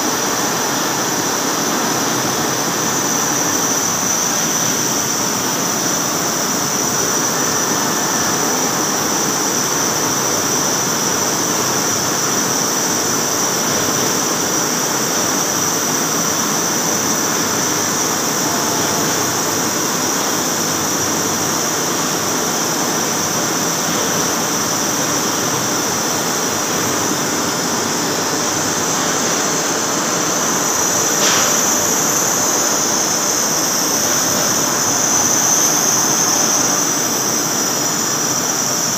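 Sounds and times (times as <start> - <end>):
machine running noise: 0.0 - 38.9
lathe cutting steel whine: 0.1 - 38.9.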